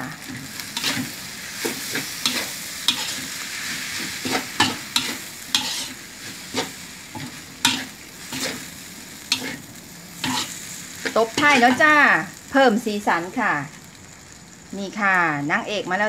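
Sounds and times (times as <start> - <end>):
food sizzling: 0.0 - 16.0
metal spatula scraping a wok: 0.2 - 11.8.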